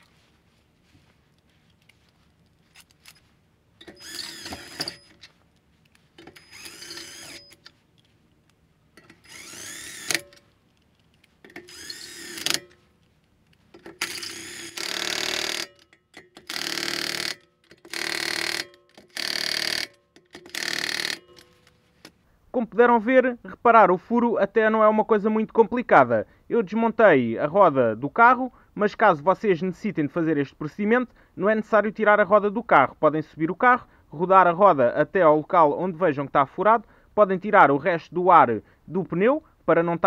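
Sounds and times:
cordless drill whining: 3.8 - 5.3, 6.2 - 7.8, 9.0 - 10.5, 11.4 - 12.8, 13.7 - 21.7.

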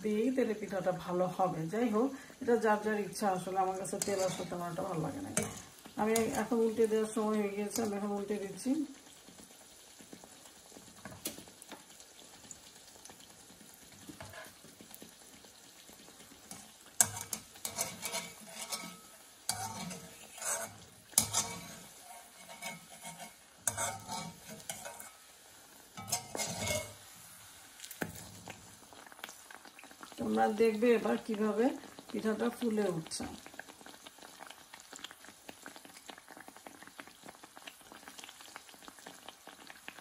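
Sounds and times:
fritter sizzling in oil: 0.0 - 40.0
skimmer scraping metal pan: 3.9 - 6.5, 16.5 - 25.2, 26.0 - 27.0.

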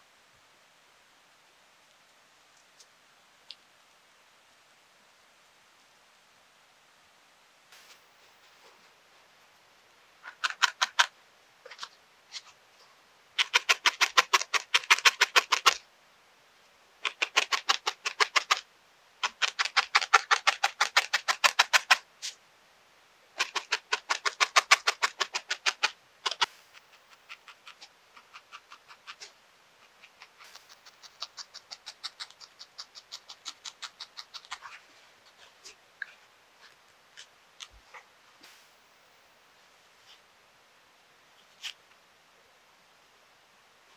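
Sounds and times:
felting needle poking foam: 10.2 - 11.1, 13.4 - 15.8, 17.0 - 18.6, 19.2 - 22.4, 23.4 - 38.7.

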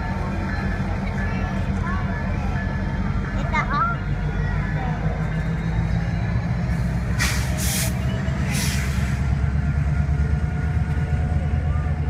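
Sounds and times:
freight train rumbling past: 0.0 - 12.0
air brakes hissing: 6.7 - 9.3.

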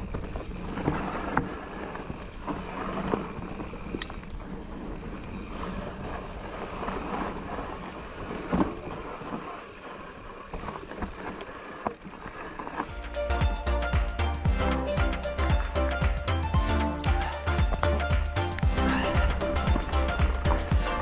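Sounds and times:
bike rattling and knocking: 0.0 - 21.0
bike tyres rolling over dirt: 0.0 - 21.0.

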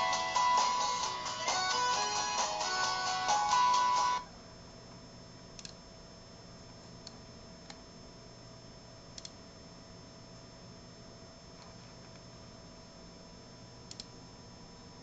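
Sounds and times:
guitar music through speakers: 0.0 - 4.2
quiet steady hum: 4.2 - 15.0
computer mouse clicks: 5.6 - 5.8, 9.2 - 9.4, 13.9 - 14.1.

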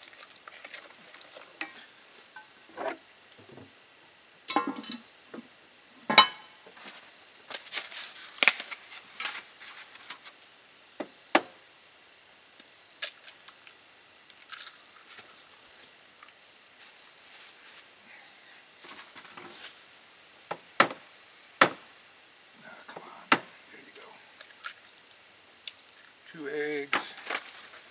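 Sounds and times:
faint high whine: 21.1 - 27.9.

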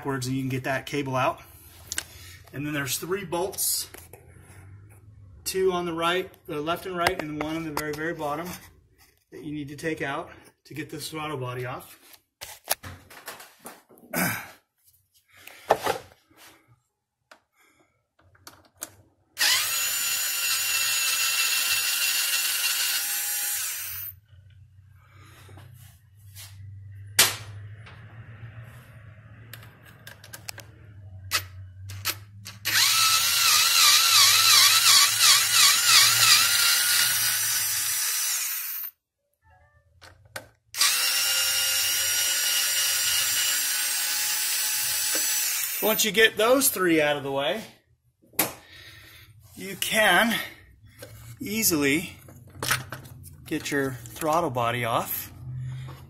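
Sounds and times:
cordless power tool whining: 19.4 - 24.1, 32.6 - 38.9, 40.8 - 46.0.

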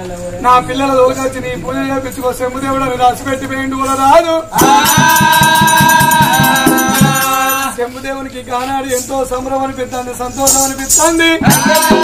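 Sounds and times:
man singing long high note: 4.5 - 7.9, 11.3 - 12.0
fast percussion beat: 4.6 - 7.8, 10.4 - 12.0.

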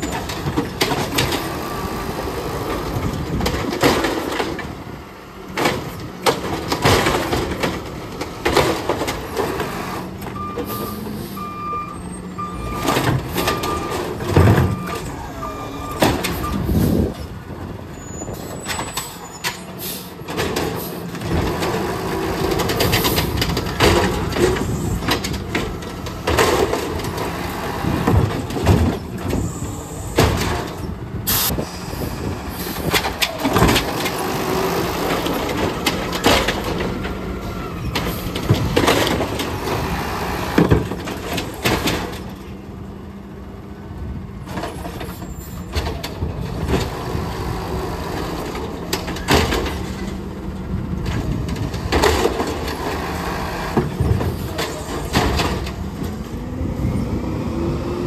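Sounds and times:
plastic carts banging and clattering: 12.9 - 15.0, 22.4 - 27.3, 28.0 - 29.4, 35.2 - 37.2, 48.5 - 50.0, 51.1 - 53.0.

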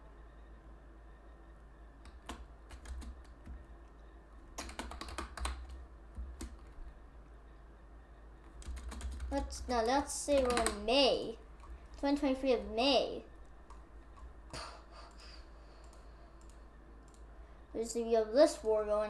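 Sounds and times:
steady low hum: 0.0 - 19.0
keyboard typing: 2.0 - 6.8, 8.4 - 12.3, 13.3 - 17.3.

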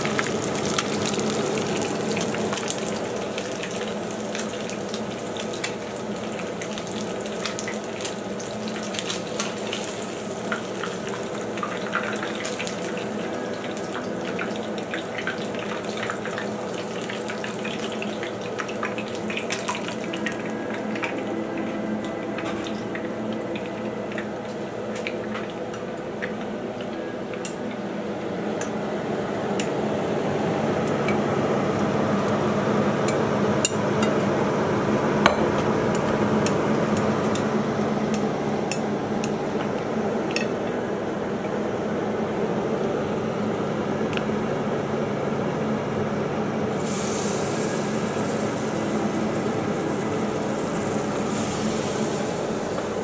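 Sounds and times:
deep-frying sizzle and crackle: 0.0 - 27.9, 46.7 - 53.0.

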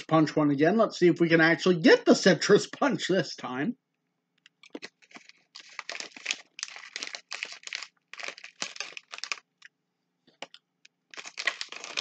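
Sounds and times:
plastic packaging crinkling: 4.6 - 9.7, 10.3 - 12.0.

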